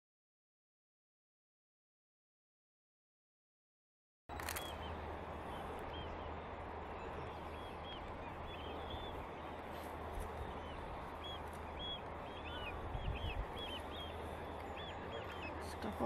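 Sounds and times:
short clear bird calls: 4.3s - 16.0s.

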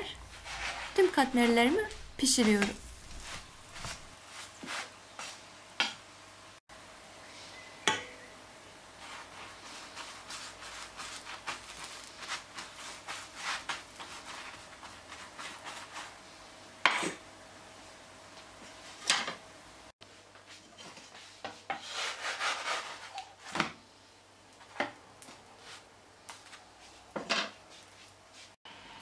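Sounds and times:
pastry brush soft strokes: 0.0s - 4.9s.

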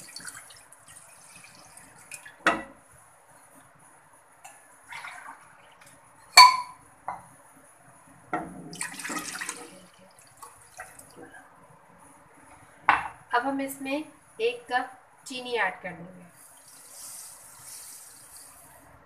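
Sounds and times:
clinks of pitcher and pot: 6.4s - 7.2s.

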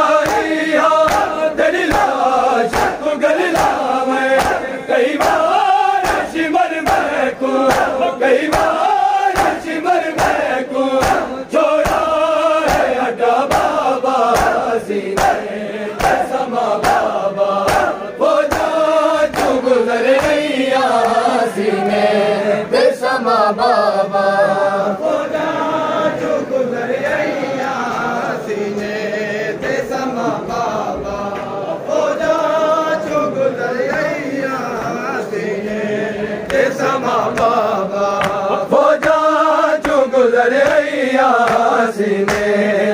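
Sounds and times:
men chanting in unison: 0.0s - 42.9s
hands slapping chests: 0.1s - 21.3s, 36.4s - 42.6s.

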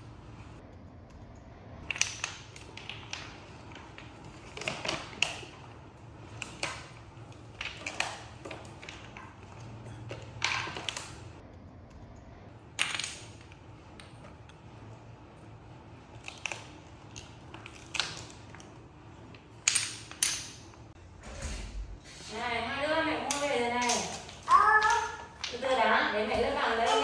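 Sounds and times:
wooden blocks clattering on tile floor: 1.8s - 11.4s, 12.8s - 14.2s, 19.3s - 20.7s, 23.2s - 27.0s.

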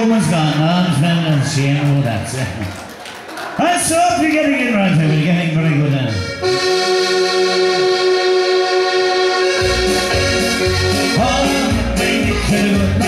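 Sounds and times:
dance band music: 4.3s - 13.0s.

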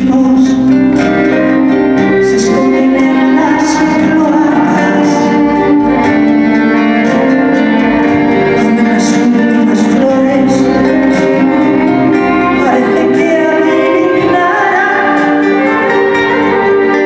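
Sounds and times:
acoustic guitar: 0.0s - 17.0s
violin: 0.0s - 17.0s
woman singing into microphone: 8.6s - 16.6s.

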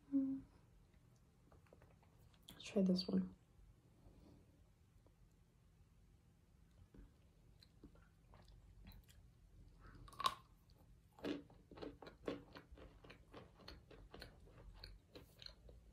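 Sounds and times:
crunchy chewing: 7.5s - 15.9s
crunchy food bitten: 10.0s - 15.9s.

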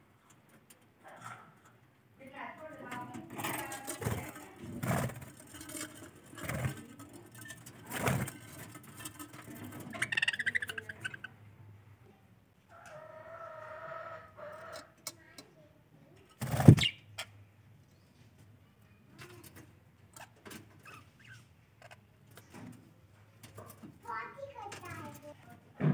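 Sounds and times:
knocks and rustles: 2.8s - 10.1s, 16.2s - 16.9s, 21.8s - 25.9s
budgerigars chirping and warbling: 10.0s - 11.3s, 16.6s - 17.0s.

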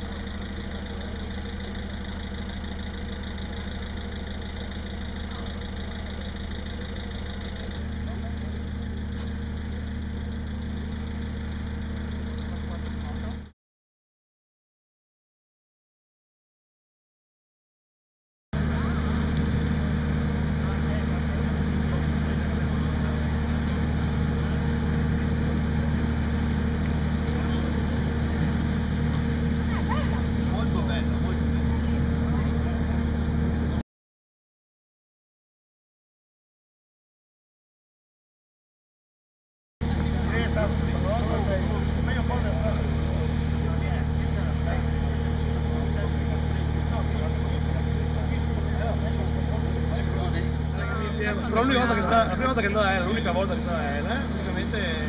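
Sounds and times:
engine idling: 0.0s - 13.5s, 18.6s - 33.8s, 39.8s - 55.0s.

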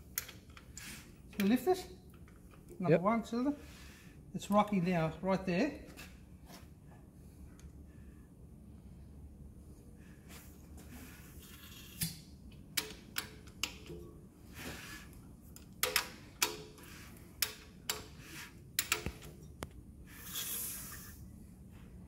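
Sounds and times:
short hiss: 20.1s - 21.2s.

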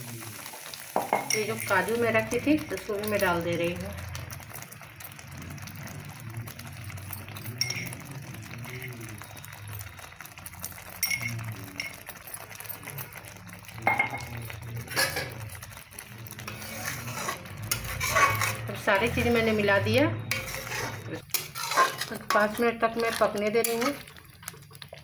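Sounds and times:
metal spatula scraping pan: 14.8s - 24.1s.

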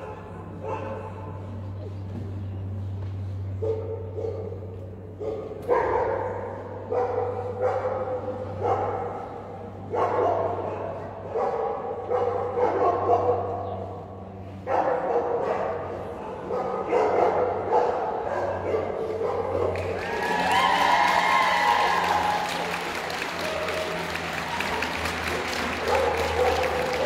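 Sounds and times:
dogs barking with echo: 0.0s - 1.6s, 3.5s - 20.3s, 20.9s - 27.0s
steady low hum: 0.0s - 20.4s.

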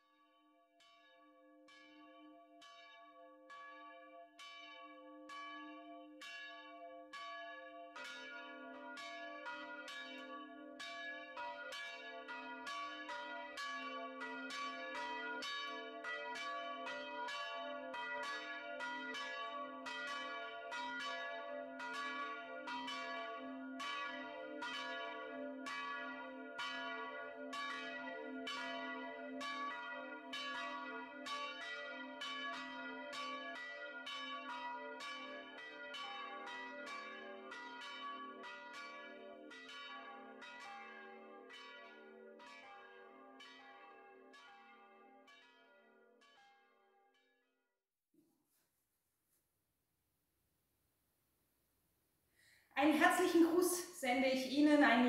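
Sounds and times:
lower church bell ringing: 1.6s - 46.4s
church bell striking: 6.2s - 45.6s.

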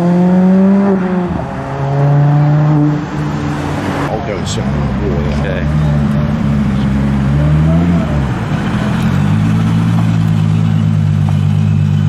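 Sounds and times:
car engine idling: 2.9s - 12.0s.

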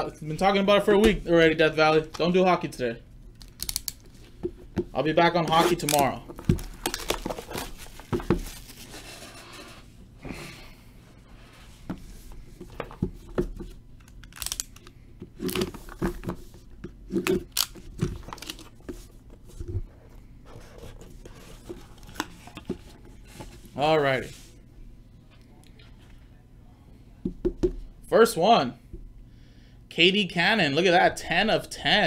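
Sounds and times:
plastic wrap tearing: 5.5s - 8.9s.

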